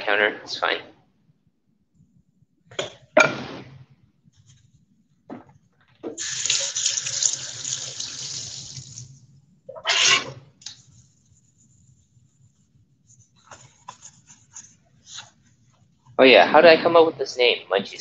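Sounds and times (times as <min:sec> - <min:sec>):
faucet running water: 0:06.2 - 0:09.3.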